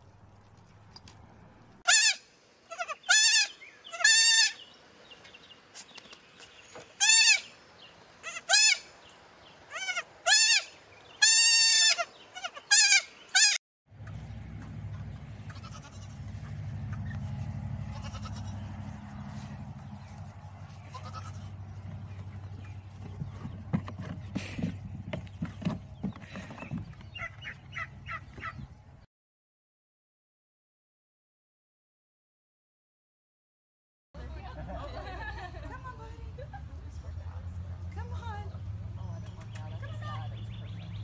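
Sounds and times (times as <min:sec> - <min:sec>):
goat kids bleating: 0:01.9 - 0:04.6, 0:07.0 - 0:07.5, 0:08.2 - 0:08.9, 0:09.7 - 0:13.6, 0:15.4 - 0:16.5, 0:17.8 - 0:18.7, 0:20.7 - 0:22.3
low steady rumble: 0:13.9 - 0:26.0.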